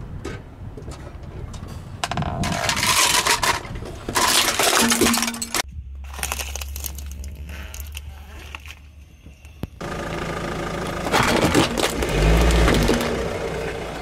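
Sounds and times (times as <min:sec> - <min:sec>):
car engine rumble: 0:00.0 - 0:14.0
small crackles of cardboard boxes: 0:06.0 - 0:09.7
plastic toy cracking under tyre: 0:06.1 - 0:08.8, 0:11.1 - 0:13.1.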